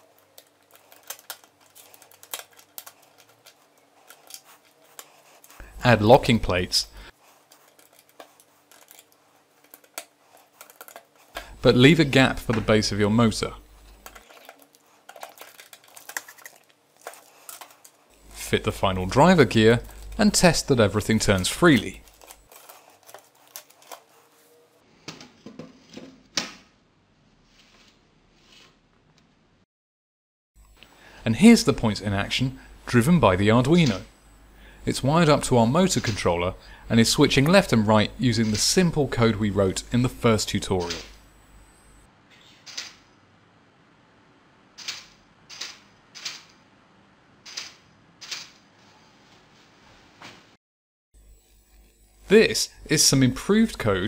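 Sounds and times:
plastic gears clicking and rattling: 0:00.0 - 0:05.6, 0:07.4 - 0:11.4, 0:14.0 - 0:18.0, 0:21.1 - 0:24.2.

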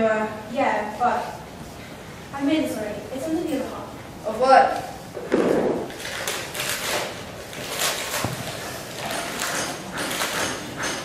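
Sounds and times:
gift wrapping rustling: 0:05.9 - 0:09.1.

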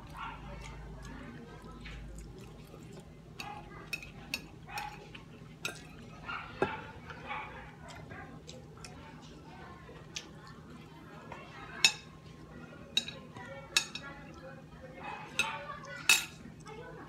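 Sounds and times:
chewing and mouth noises: 0:00.0 - 0:12.5
cutlery clinking on a plate: 0:12.9 - 0:14.1, 0:15.3 - 0:16.4.

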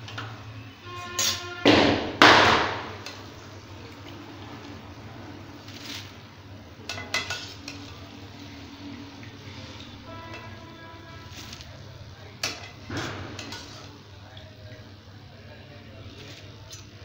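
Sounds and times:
metal ladle scraping metal pan: 0:00.8 - 0:01.6, 0:09.5 - 0:11.8, 0:12.4 - 0:14.0.

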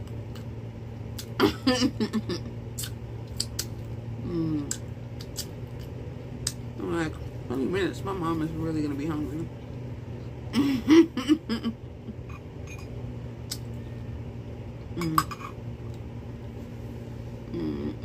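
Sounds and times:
steady low hum: 0:00.0 - 0:18.0
murmured vocal sound: 0:17.5 - 0:18.0.

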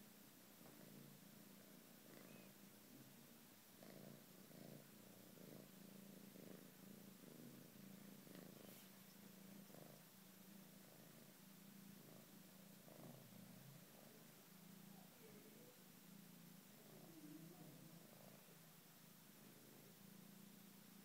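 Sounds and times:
kitten purring: 0:00.0 - 0:21.0.

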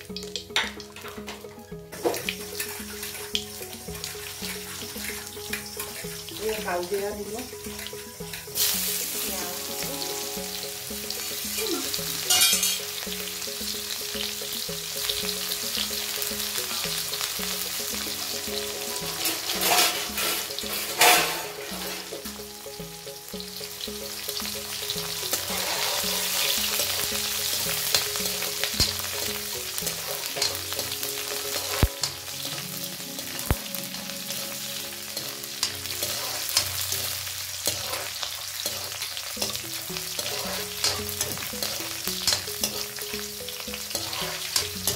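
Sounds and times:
onions sizzling in hot oil: 0:00.0 - 0:44.9
spatula stirring: 0:25.2 - 0:32.0, 0:35.1 - 0:44.9.

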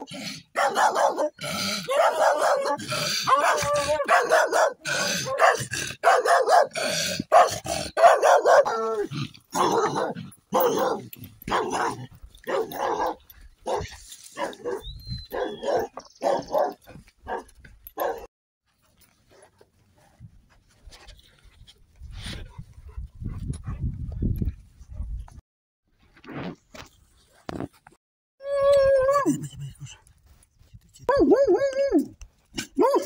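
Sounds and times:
dog barking: 0:00.5 - 0:08.9, 0:09.6 - 0:18.3, 0:31.1 - 0:31.7, 0:32.8 - 0:33.0.

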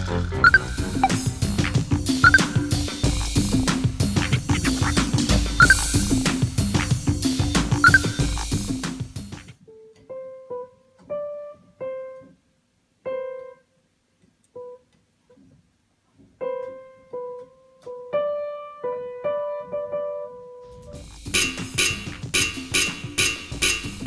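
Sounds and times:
background music with drum beat: 0:00.0 - 0:09.6, 0:20.9 - 0:24.0
piano notes: 0:00.0 - 0:13.8, 0:14.5 - 0:15.0, 0:16.2 - 0:24.0.

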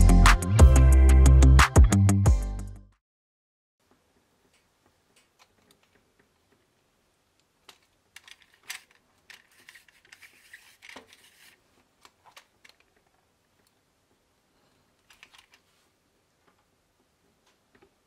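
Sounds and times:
plastic parts clicking and rattling: 0:07.6 - 0:13.8, 0:15.0 - 0:15.7
plastic scraping: 0:07.7 - 0:13.1.

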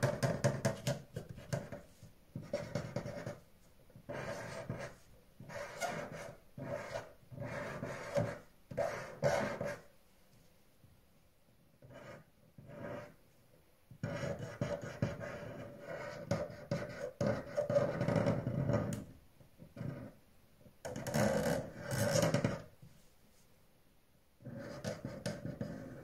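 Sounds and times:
pencil scratching on paper: 0:00.0 - 0:09.9, 0:11.8 - 0:13.2, 0:14.0 - 0:19.0, 0:24.4 - 0:26.0.

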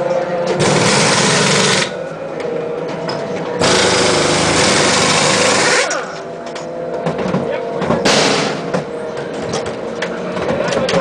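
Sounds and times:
air impact wrenches: 0:00.6 - 0:01.9, 0:03.6 - 0:06.2.

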